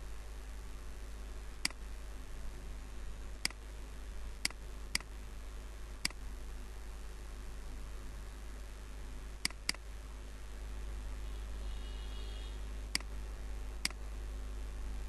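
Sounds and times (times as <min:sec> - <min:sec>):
faint microphone hiss: 0:00.0 - 0:15.0
low electrical hum: 0:00.0 - 0:15.0
computer mouse clicks: 0:09.4 - 0:09.8, 0:12.9 - 0:13.1, 0:13.8 - 0:14.0.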